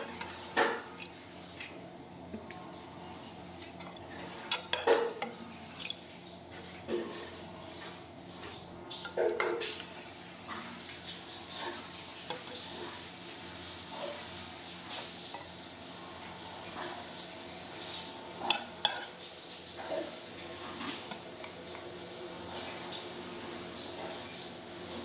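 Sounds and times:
metal utensil stirring and clinking: 0:00.0 - 0:01.2, 0:03.7 - 0:06.0, 0:18.4 - 0:19.2
food sizzling in a pan: 0:00.0 - 0:25.0.

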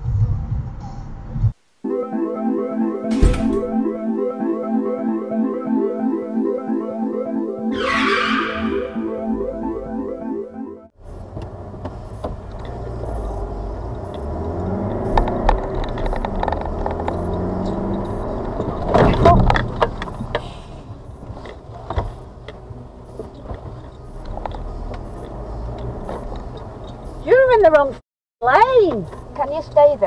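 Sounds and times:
car engine and road noise: 0:02.6 - 0:30.0
brief loud sound: 0:07.7 - 0:09.1.

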